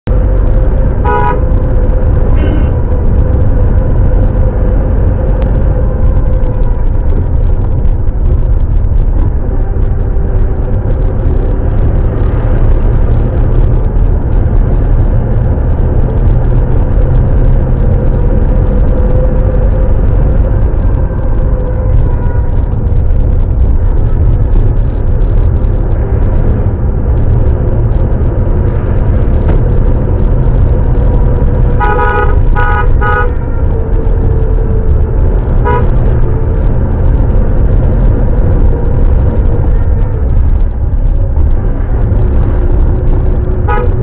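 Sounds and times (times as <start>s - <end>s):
vehicle road noise rumble: 0.0s - 44.0s.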